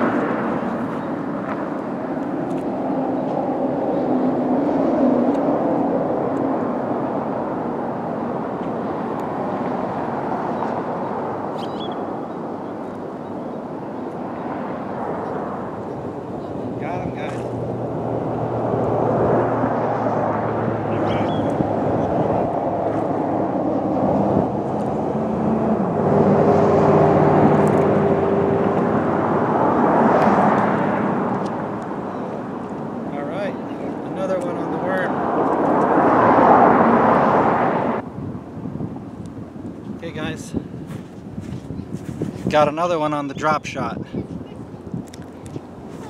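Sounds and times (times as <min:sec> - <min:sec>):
steady outdoor roar: 0:00.0 - 0:46.0
bird chirp: 0:11.5 - 0:13.6, 0:21.1 - 0:21.6
passing engine drone: 0:13.6 - 0:38.1.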